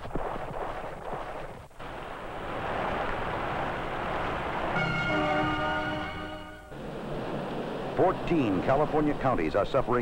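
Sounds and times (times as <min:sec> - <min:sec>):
fire engine passing: 0:01.8 - 0:10.0
multi-note horn blast: 0:04.7 - 0:06.8.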